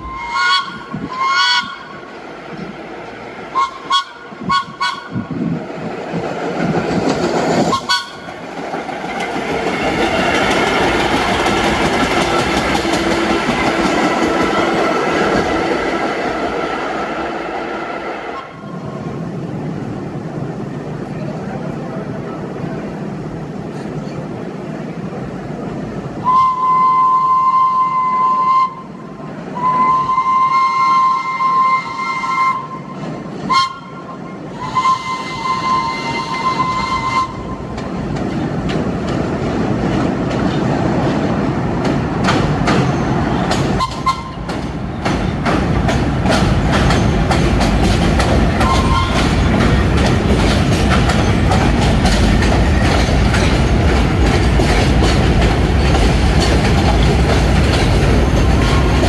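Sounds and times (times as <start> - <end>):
subway train horn: 0.0 - 2.1, 3.5 - 5.6, 7.6 - 8.5, 12.5 - 19.2, 26.2 - 37.8, 43.1 - 44.7, 48.5 - 49.6
subway train wheels and motors: 0.0 - 59.0.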